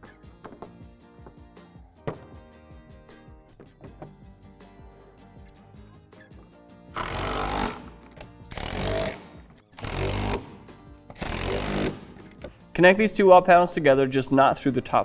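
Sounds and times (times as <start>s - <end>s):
power drill driving bolts: 7.0s - 9.2s, 9.8s - 10.6s, 11.2s - 12.1s.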